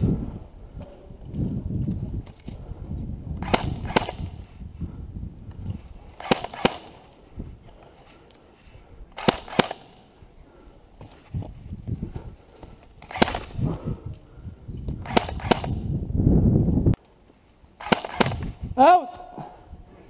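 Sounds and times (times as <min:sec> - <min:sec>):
airsoft rifle shots: 0:03.4 - 0:04.3, 0:06.2 - 0:07.0, 0:09.2 - 0:10.0, 0:17.8 - 0:18.5.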